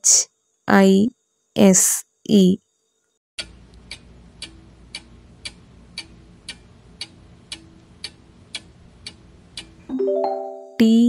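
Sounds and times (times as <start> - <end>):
clock ticking: 3.4 - 9.8.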